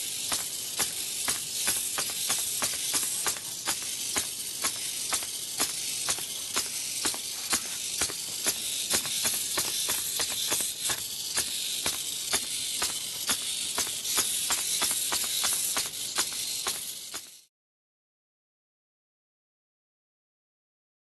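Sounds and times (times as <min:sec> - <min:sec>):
robot legs clicking: 0:00.0 - 0:17.5
steady high hiss: 0:00.0 - 0:17.5.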